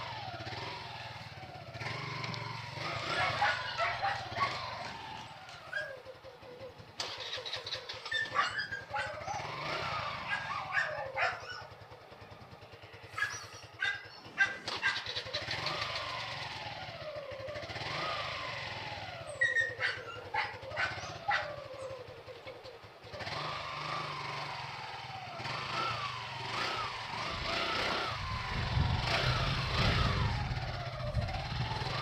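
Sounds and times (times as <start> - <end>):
motorcycle engine running: 0.0 - 32.0
dog barking: 3.1 - 4.8, 8.1 - 9.5, 10.2 - 11.7, 13.1 - 15.1, 19.4 - 21.6
dog howling: 3.1 - 4.8, 8.1 - 9.5, 10.2 - 11.7, 13.1 - 15.0, 19.4 - 21.9.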